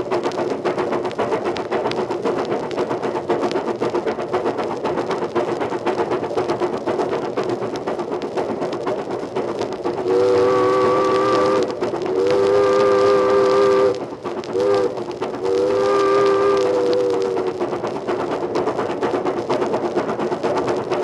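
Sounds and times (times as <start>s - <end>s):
train rattling at speed: 0.0s - 21.0s
steam whistle blasts: 10.1s - 14.0s, 14.6s - 17.4s.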